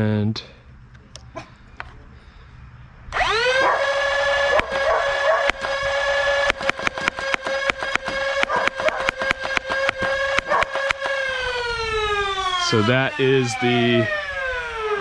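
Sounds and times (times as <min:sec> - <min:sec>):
flywheel motors whining: 0:03.1 - 0:15.0
foam dart shots clicking: 0:05.3 - 0:05.8, 0:06.4 - 0:11.2.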